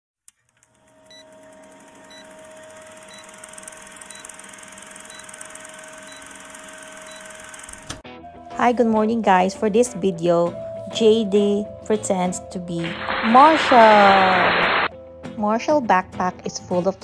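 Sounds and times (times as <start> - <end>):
film projector rattling: 0.5 - 8.0.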